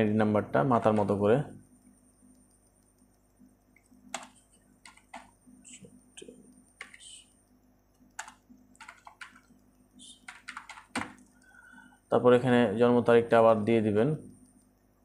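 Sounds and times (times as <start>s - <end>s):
typing on keyboard: 3.8s - 5.4s, 6.2s - 7.3s, 8.0s - 11.6s.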